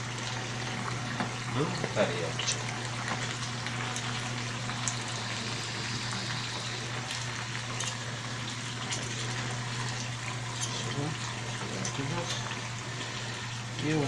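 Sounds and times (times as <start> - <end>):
meat sizzling in a frying pan: 0.0 - 14.0.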